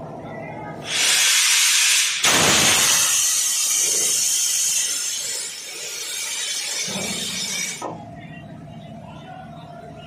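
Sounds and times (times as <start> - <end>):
compressed air hissing: 0.8 - 5.6.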